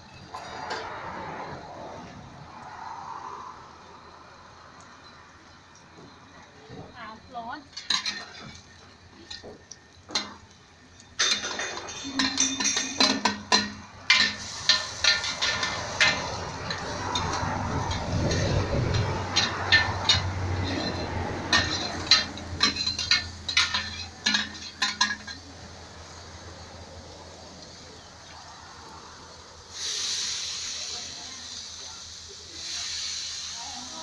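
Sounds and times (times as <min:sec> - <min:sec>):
metal spatulas scraping steel pan: 0:07.8 - 0:08.6, 0:11.2 - 0:25.5.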